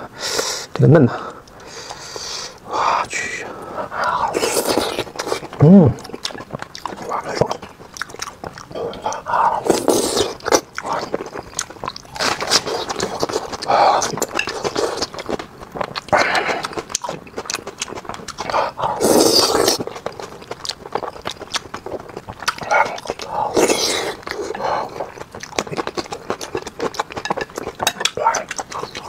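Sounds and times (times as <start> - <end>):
lip smacks and chewing: 4.7 - 29.0.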